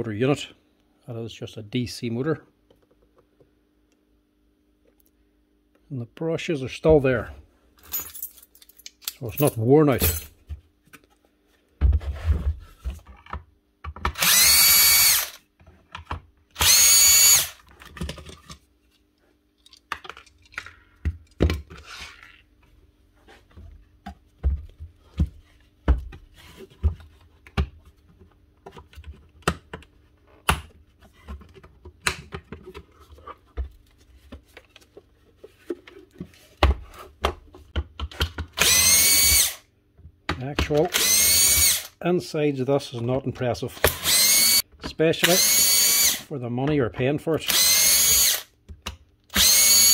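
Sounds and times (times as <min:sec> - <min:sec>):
cordless drill whining: 0:14.2 - 0:15.4, 0:16.6 - 0:17.6, 0:38.6 - 0:39.6, 0:40.9 - 0:42.0, 0:43.9 - 0:44.6, 0:45.2 - 0:46.2, 0:47.5 - 0:48.5, 0:49.3 - 0:49.9
plastic parts clicking and knocking: 0:17.7 - 0:18.6, 0:35.6 - 0:38.6.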